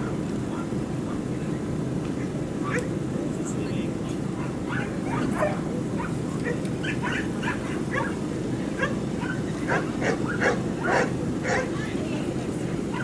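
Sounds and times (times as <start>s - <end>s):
dogs barking and yipping: 4.3s - 11.8s.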